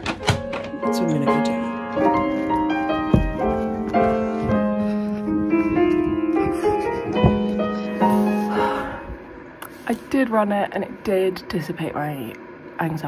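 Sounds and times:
piano music: 0.0 - 9.6
thump: 3.1 - 3.4.

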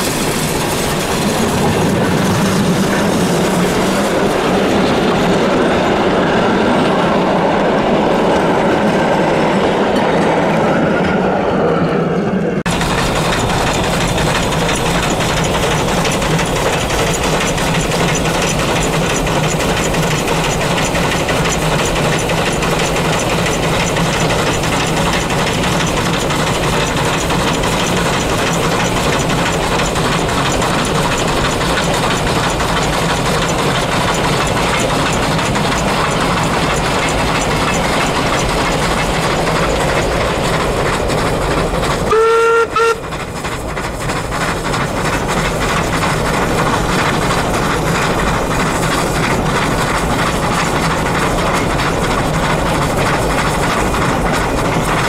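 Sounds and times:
steam locomotive whistle: 42.1 - 43.1.

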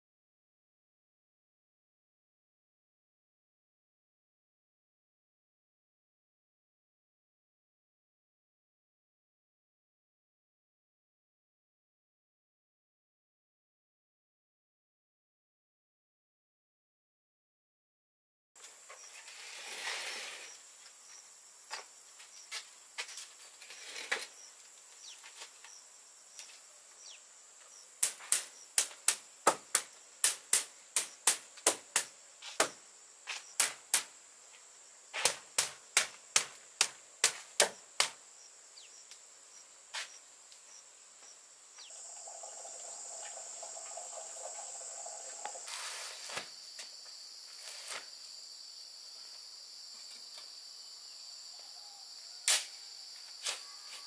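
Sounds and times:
insects droning: 18.6 - 54.0.

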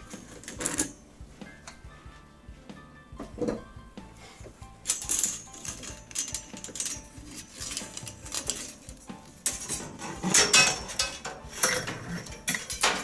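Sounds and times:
metal parts clinking and rattling: 0.3 - 0.9, 4.8 - 13.0.

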